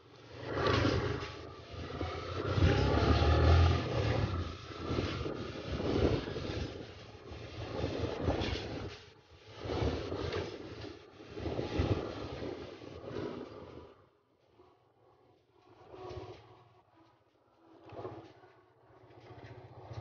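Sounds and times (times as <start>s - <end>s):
motorcycle road noise on dirt: 0.0s - 9.1s, 17.8s - 20.0s
rushing wind: 0.0s - 14.7s.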